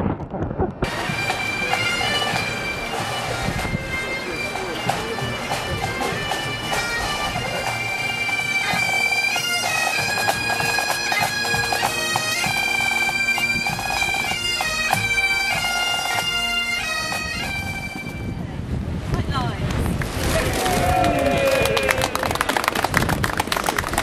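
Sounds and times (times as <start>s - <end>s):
pipe band playing bagpipes: 0.8s - 18.5s.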